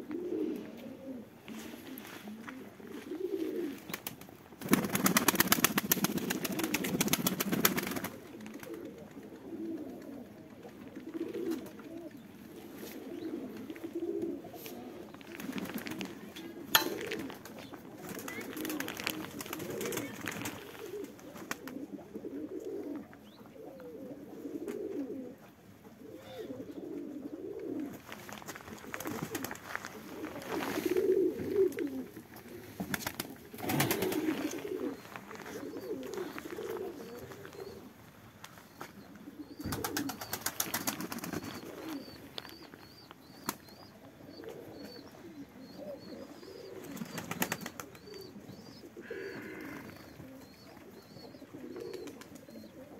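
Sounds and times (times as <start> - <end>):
pigeons cooing: 0.0 - 52.9
wings flapping: 3.8 - 9.3, 15.3 - 16.2, 16.8 - 21.8, 27.9 - 31.9, 32.8 - 37.7, 39.6 - 42.6, 46.8 - 48.2.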